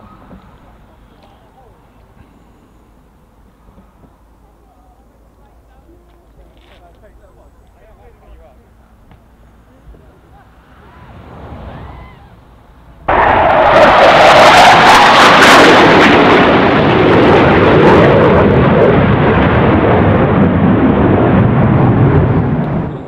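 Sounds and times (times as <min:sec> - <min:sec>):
low-flying jet passing: 0:09.6 - 0:23.0.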